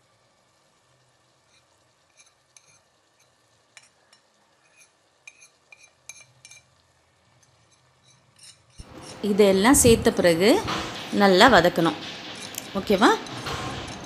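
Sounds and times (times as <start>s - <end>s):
low steady hiss: 0.0s - 14.0s
spoon scraping and tapping plate: 1.5s - 2.8s, 3.8s - 6.7s, 7.4s - 9.3s, 12.2s - 14.0s.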